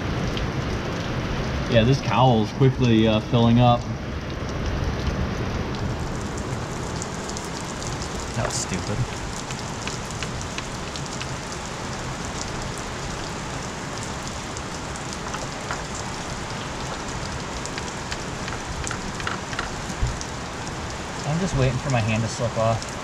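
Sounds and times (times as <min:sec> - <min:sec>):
heavy rain drumming on a roof: 0:00.0 - 0:23.0
sharp drip ticks: 0:06.4 - 0:12.6, 0:13.6 - 0:22.1.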